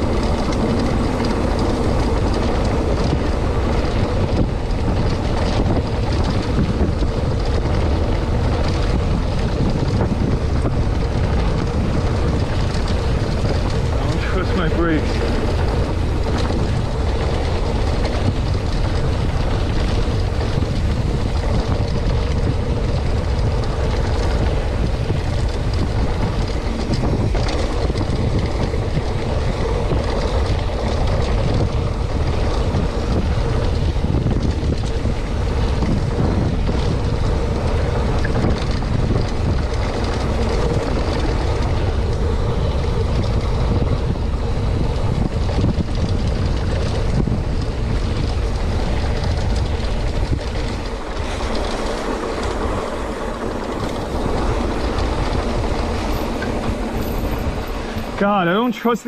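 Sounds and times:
bike tyres rolling over dirt: 0:00.0 - 0:59.0
wind buffeting microphone: 0:00.0 - 0:59.0.

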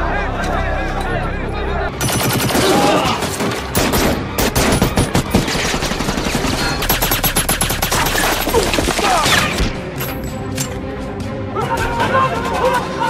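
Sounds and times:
heavy gunfire: 0:02.0 - 0:09.7.

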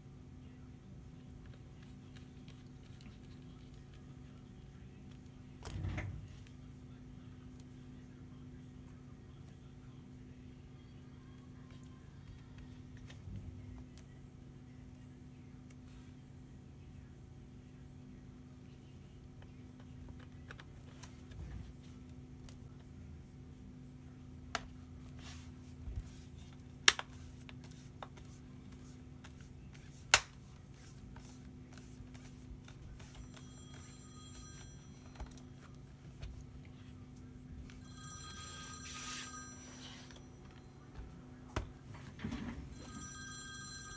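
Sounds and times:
telephone ringing: 0:32.3 - 0:43.9.

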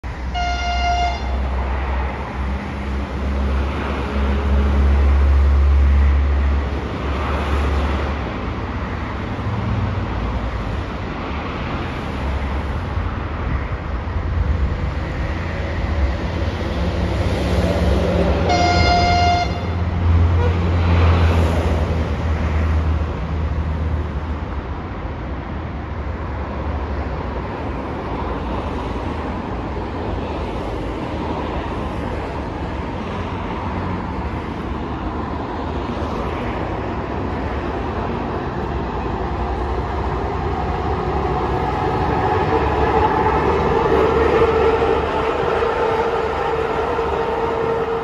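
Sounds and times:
diesel locomotive engine rumbling: 0:00.0 - 0:48.0
high locomotive horn blast: 0:00.2 - 0:01.7, 0:18.3 - 0:21.0, 0:42.4 - 0:48.0.

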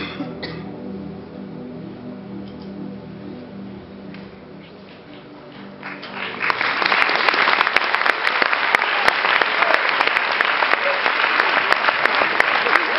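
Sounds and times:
audience applause: 0:05.5 - 0:12.9.

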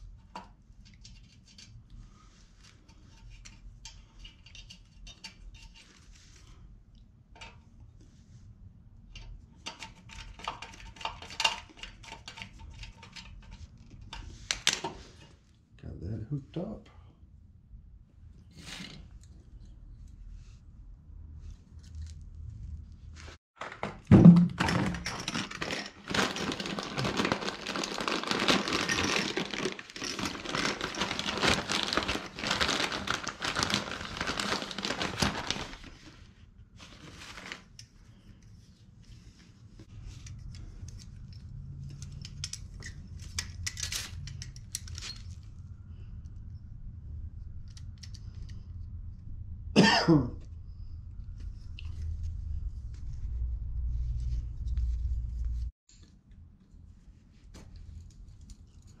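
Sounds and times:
plastic packaging crinkling: 0:25.3 - 0:36.1
short cough-like sound: 0:49.8 - 0:50.4
low hum: 0:50.4 - 0:55.7.

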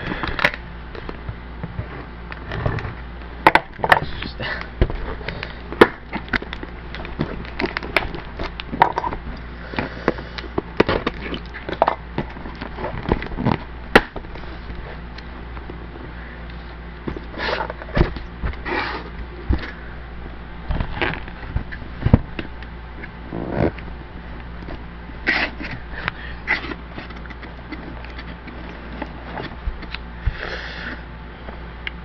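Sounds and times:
cardboard and tape scraping: 0:16.5 - 0:19.8, 0:20.6 - 0:22.4, 0:24.7 - 0:30.7.

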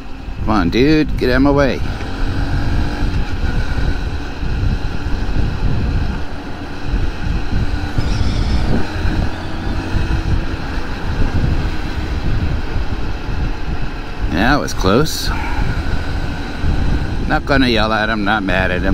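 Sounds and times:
city traffic: 0:00.0 - 0:18.9
wind noise on microphone: 0:00.3 - 0:18.9
small motorcycle engine running: 0:01.8 - 0:13.8.

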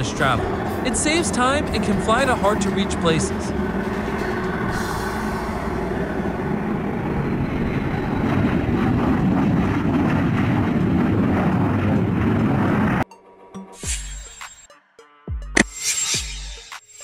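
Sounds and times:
jet engines rumbling: 0:00.0 - 0:13.0.

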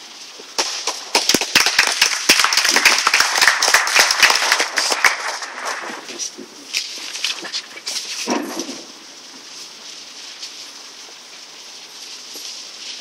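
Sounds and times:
hands clapping close by: 0:00.9 - 0:06.0
small group applauding: 0:01.1 - 0:06.1.

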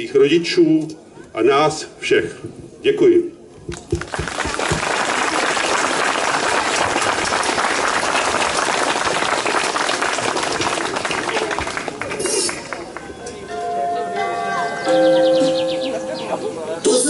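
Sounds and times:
audience applauding: 0:03.7 - 0:13.1.

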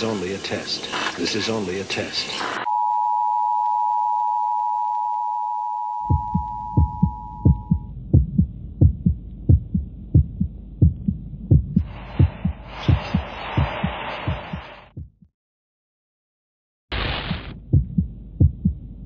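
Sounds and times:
two-tone attention tone: 0:02.7 - 0:07.9
heartbeat thumps: 0:06.1 - 0:15.3, 0:17.3 - 0:19.0
rushing hiss: 0:11.8 - 0:14.9.

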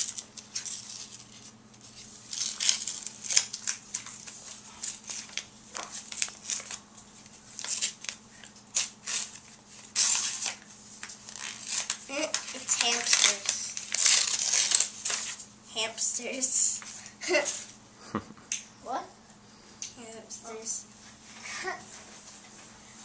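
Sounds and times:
paper envelope tearing: 0:00.0 - 0:06.8, 0:07.5 - 0:15.4.

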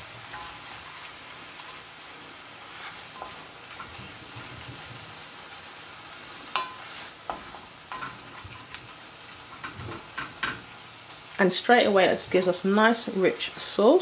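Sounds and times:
food sizzling in pot: 0:00.0 - 0:14.0
spoon knocking against pot: 0:06.6 - 0:06.8.

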